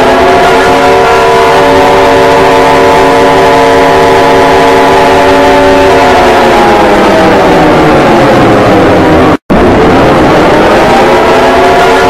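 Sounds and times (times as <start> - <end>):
emergency alert siren: 0.0 - 12.0.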